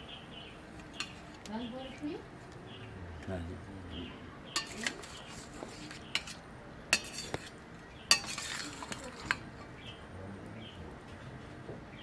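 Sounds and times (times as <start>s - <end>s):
metal spoon scraping bowl: 4.6s - 9.4s.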